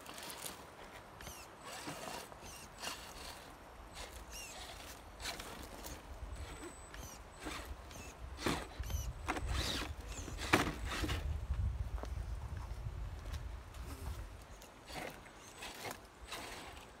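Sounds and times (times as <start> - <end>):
electric motor whirring: 1.2 - 11.2.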